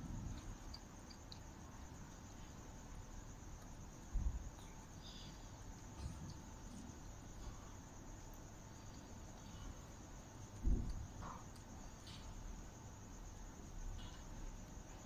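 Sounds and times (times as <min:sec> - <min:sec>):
crickets chirping: 0:00.0 - 0:15.0
low thump: 0:10.6 - 0:11.4.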